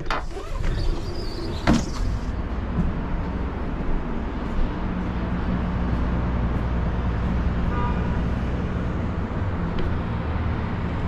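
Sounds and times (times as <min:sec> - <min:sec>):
rushing wind: 0:00.0 - 0:11.0
low machinery hum: 0:02.2 - 0:11.0
faint horn toot: 0:07.6 - 0:08.2.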